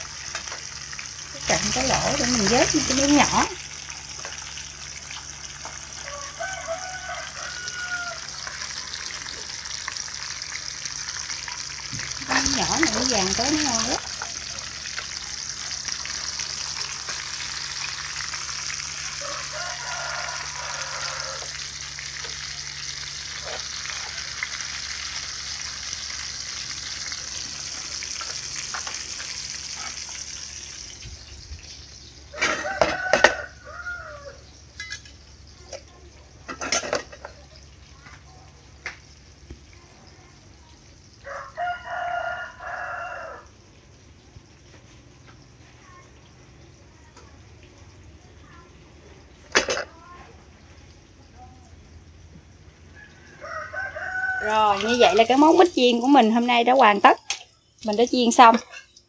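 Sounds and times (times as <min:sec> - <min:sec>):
food sizzling in hot oil: 0:00.0 - 0:59.0
rooster crowing: 0:05.7 - 0:10.2, 0:18.8 - 0:22.8, 0:23.4 - 0:25.0, 0:32.3 - 0:34.6, 0:41.2 - 0:43.6, 0:52.8 - 0:55.8.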